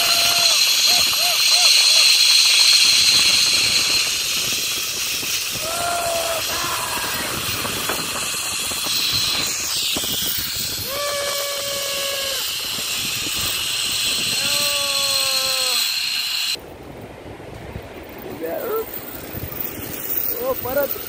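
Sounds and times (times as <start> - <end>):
rush of air: 0.0 - 14.8
zipline pulleys running on cable: 0.0 - 16.6, 18.1 - 21.0.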